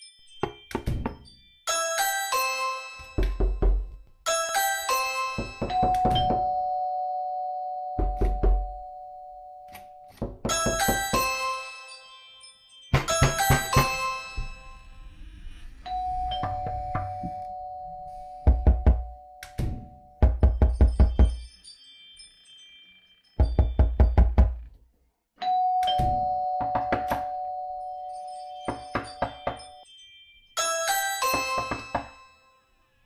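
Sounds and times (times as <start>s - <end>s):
two-note doorbell chime: 1.6s - 3.6s, 4.3s - 9.7s, 10.5s - 15.2s, 25.4s - 32.8s
knocking on a door: 5.4s - 6.5s, 8.0s - 8.8s, 10.2s - 11.2s, 13.0s - 14.0s, 18.5s - 19.1s, 20.2s - 21.4s, 23.4s - 24.6s.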